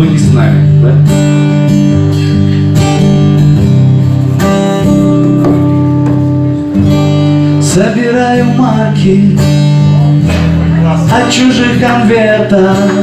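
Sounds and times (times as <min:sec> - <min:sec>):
guitar strumming chords: 0:00.0 - 0:13.0.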